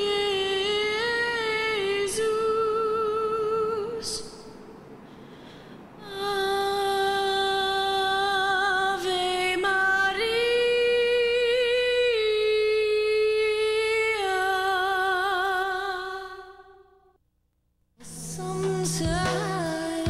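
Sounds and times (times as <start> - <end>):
woman singing unaccompanied: 0.0 - 4.6, 6.0 - 16.8, 18.0 - 20.0.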